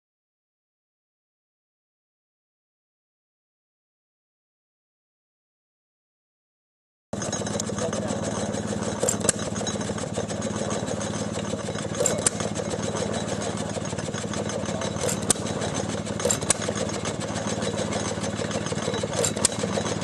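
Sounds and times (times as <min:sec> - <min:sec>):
low engine drone: 0:07.2 - 0:20.0.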